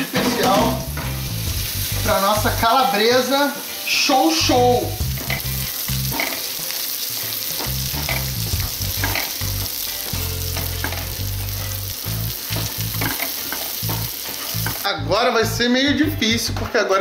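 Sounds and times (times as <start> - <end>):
sausage and onion sizzling in pan: 0.0 - 15.6.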